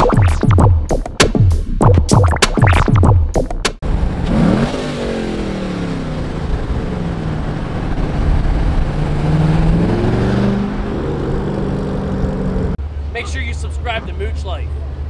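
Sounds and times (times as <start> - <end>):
car engine and exhaust accelerating: 3.8 - 13.1.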